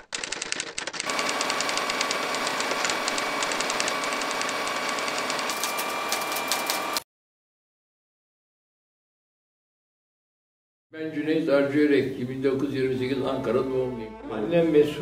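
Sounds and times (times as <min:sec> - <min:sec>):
typewriter keys clacking: 0:00.0 - 0:07.0.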